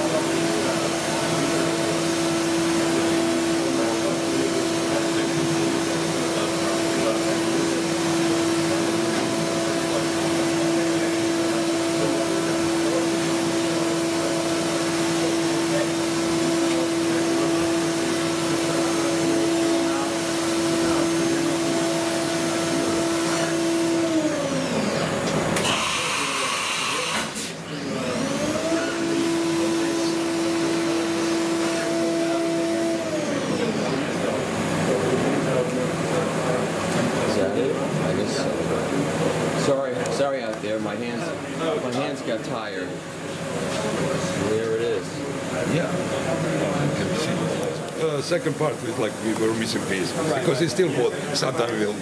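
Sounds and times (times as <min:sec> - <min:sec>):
machine spindle whine: 0:00.0 - 0:38.5.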